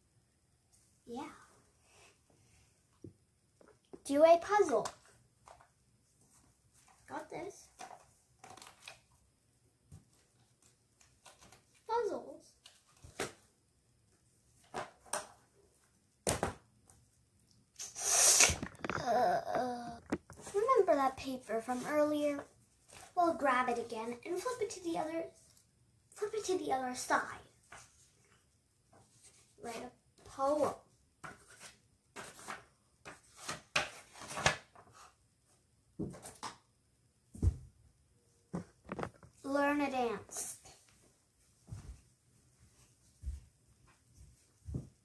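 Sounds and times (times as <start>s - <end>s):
girl's wordless voice: 1.1s - 1.6s, 4.0s - 5.0s, 7.0s - 7.7s, 11.8s - 12.6s, 18.8s - 22.5s, 23.1s - 25.4s, 26.1s - 27.6s, 29.6s - 30.9s, 39.4s - 40.9s
paper rustling: 31.2s - 35.1s.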